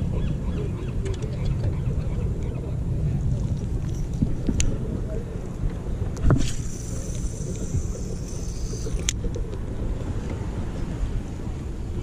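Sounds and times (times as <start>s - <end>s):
wind rumbling on microphone: 0.0s - 12.0s
fishing line running off reel: 6.3s - 9.2s.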